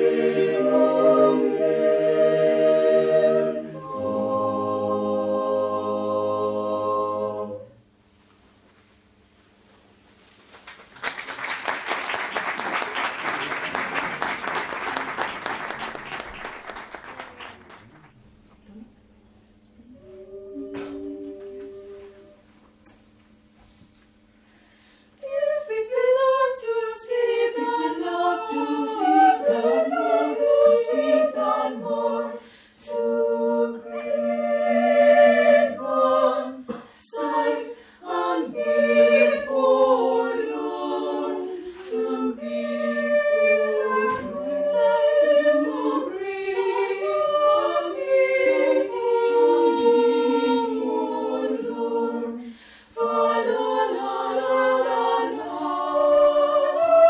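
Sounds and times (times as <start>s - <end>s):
mixed choir singing a cappella: 0.0s - 7.8s, 19.8s - 22.4s, 25.2s - 57.0s.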